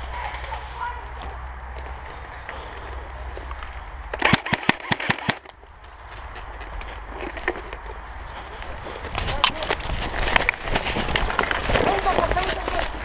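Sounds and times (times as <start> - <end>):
rustling in dry leaves: 8.0 - 13.0.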